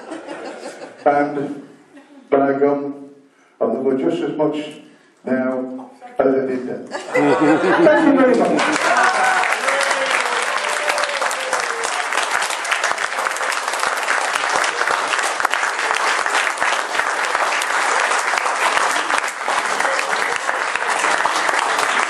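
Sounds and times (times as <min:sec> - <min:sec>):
people applauding: 0:07.8 - 0:22.0.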